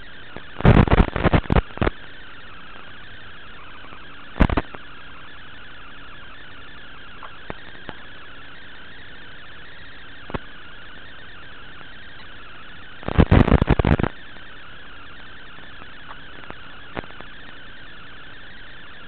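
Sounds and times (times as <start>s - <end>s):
loud crackling bursts: 0.0s - 19.0s
static hiss: 0.0s - 19.0s.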